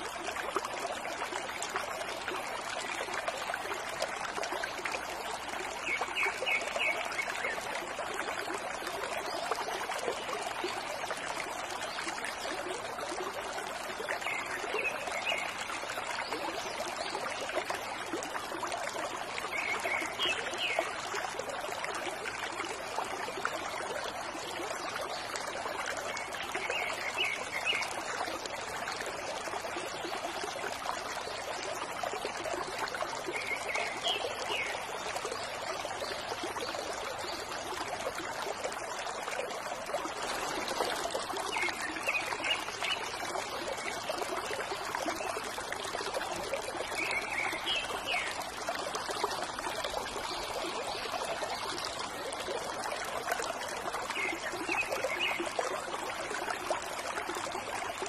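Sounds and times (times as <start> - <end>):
water trickling from fountain spout: 0.0 - 58.0.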